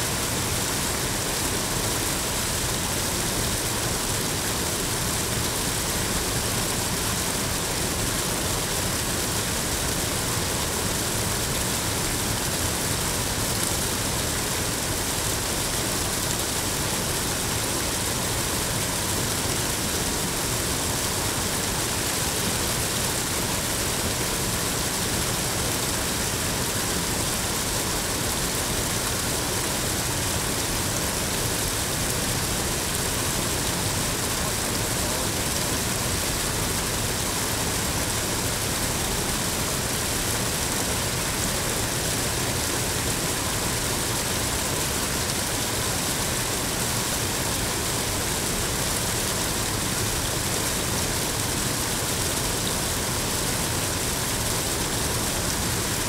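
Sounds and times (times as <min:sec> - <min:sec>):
falling water rushing: 0:00.0 - 0:56.0.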